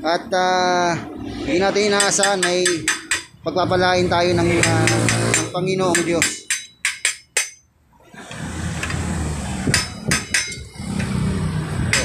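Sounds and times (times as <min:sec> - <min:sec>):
hammer striking metal: 0:02.0 - 0:03.4, 0:04.4 - 0:07.7, 0:09.6 - 0:11.2, 0:11.8 - 0:12.0.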